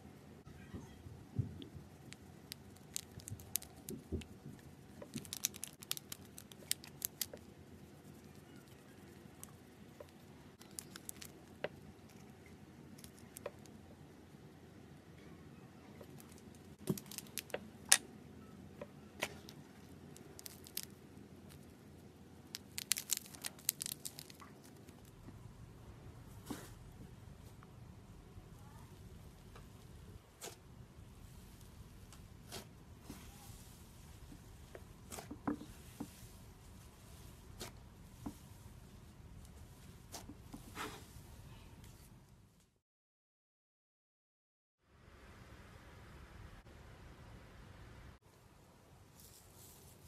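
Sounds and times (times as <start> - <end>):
sequins pattering onto slime: 1.8 - 12.2, 16.0 - 17.9, 19.3 - 25.3
plastic packets crinkling: 22.6 - 25.0.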